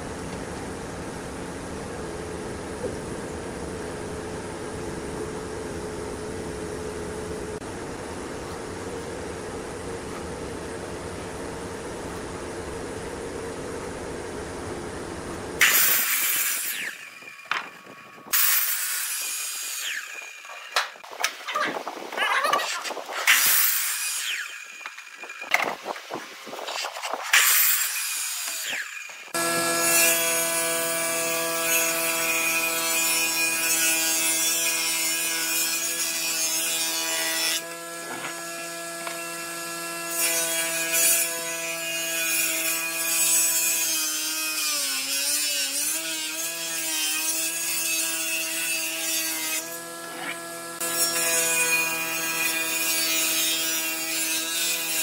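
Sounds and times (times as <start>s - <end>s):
table saw ripping board: 15.6s - 21.4s, 22.4s - 32.3s, 34.4s - 39.3s
miter saw cutting wood: 15.6s - 55.0s.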